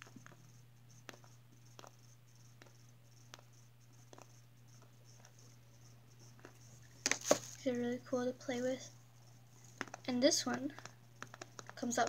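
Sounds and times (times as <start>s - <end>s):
steady low hum: 0.0s - 12.0s
fingers handling plastic pen: 9.6s - 12.0s.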